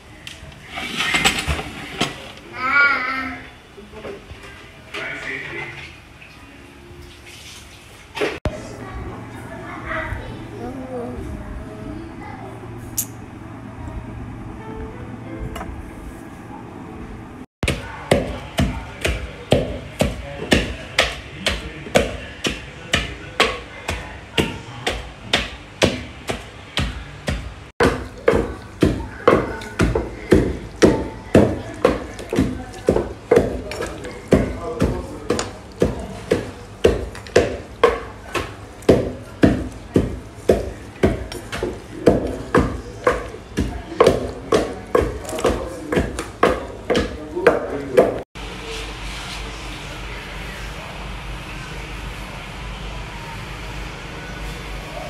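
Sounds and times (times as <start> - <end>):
wooden pestle pounding in mortar: 17.6 - 48.2
wooden spoon mixing thick sauce: 26.3 - 48.2.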